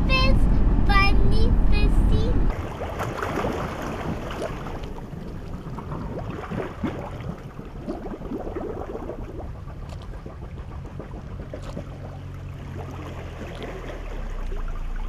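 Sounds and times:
water lapping and gurgling: 0:00.0 - 0:15.0
wind rumble on microphone: 0:00.0 - 0:15.0
small bubbly splashes: 0:02.5 - 0:15.0.

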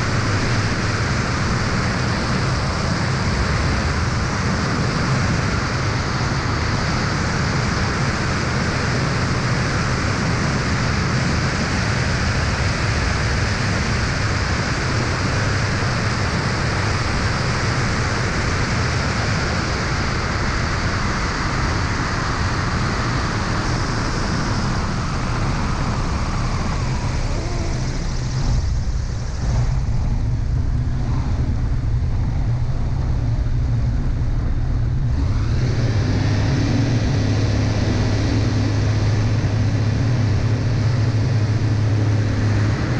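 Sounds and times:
aircraft engine and propeller: 0:00.0 - 0:42.9
wind rush over camera: 0:17.6 - 0:42.9.

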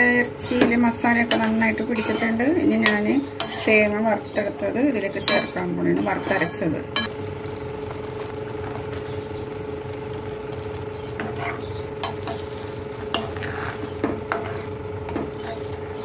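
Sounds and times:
spoon stirring and scraping pan: 0:00.4 - 0:07.1, 0:11.0 - 0:16.0
spoon clinking against pan: 0:05.2 - 0:05.6
food sizzling in a pan: 0:05.3 - 0:16.0.

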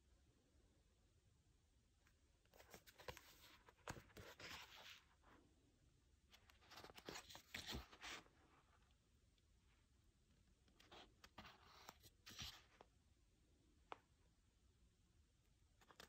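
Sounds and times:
paper rustling: 0:02.5 - 0:05.4, 0:06.3 - 0:08.8, 0:10.7 - 0:12.9.

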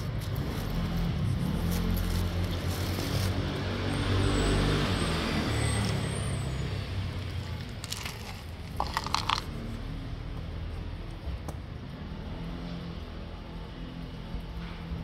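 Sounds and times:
vehicle engine rumbling past: 0:00.0 - 0:11.0.

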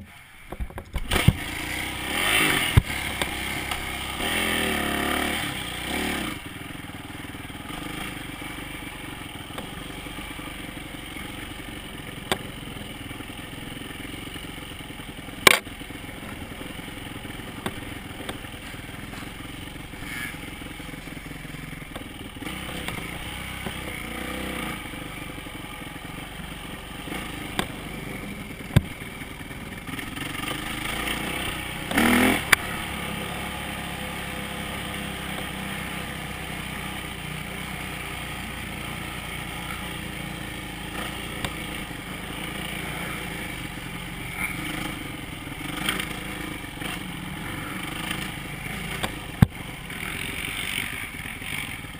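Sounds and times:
dirt bike engine running: 0:00.0 - 0:51.9
sharp knocks over bumps: 0:00.5 - 0:01.5, 0:02.6 - 0:03.9, 0:15.4 - 0:16.4, 0:17.5 - 0:19.4, 0:21.9 - 0:24.2, 0:27.2 - 0:27.8, 0:28.7 - 0:29.0, 0:41.0 - 0:41.8, 0:47.9 - 0:49.6.

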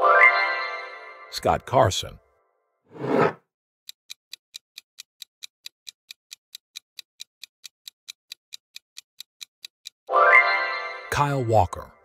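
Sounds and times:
clock-like timer ticking: 0:03.9 - 0:10.1.

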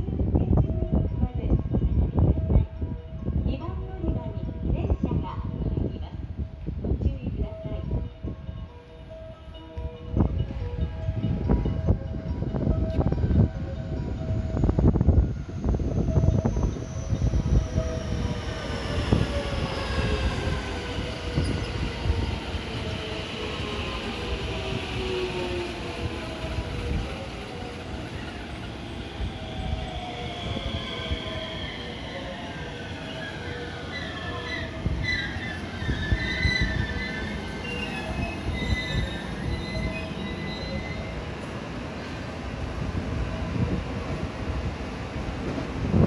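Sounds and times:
brake and wheel squeals: 0:33.0 - 0:41.2.

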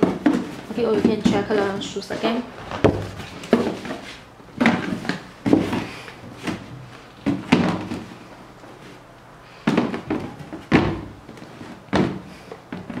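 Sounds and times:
cardboard boxes handled and closed: 0:02.2 - 0:08.1.

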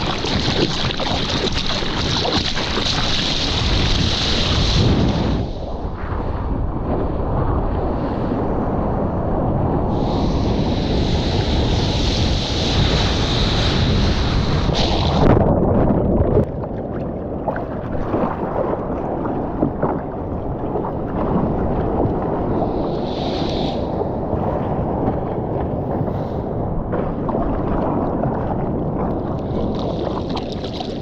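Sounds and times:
muffled underwater bubbles: 0:00.0 - 0:07.6, 0:12.8 - 0:31.0
sea water rushing and splashing: 0:00.0 - 0:31.0
wind noise on microphone: 0:00.0 - 0:31.0
hiss of spray: 0:23.0 - 0:23.8.

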